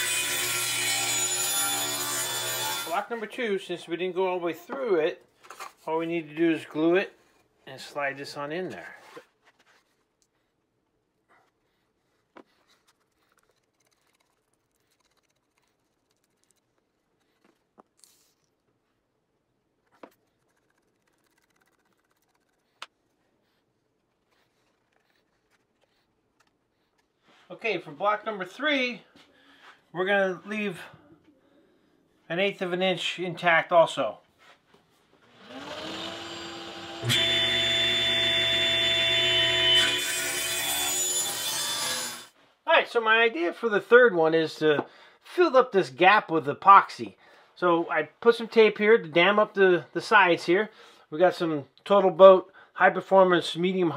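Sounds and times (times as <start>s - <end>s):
table saw cutting wood: 0.0s - 3.1s, 35.3s - 42.3s
brush spreading glue ticking: 11.5s - 18.8s, 19.8s - 27.3s
glue bottle hiss: 12.5s - 18.6s, 20.1s - 23.0s
saw motor hum: 35.3s - 42.3s.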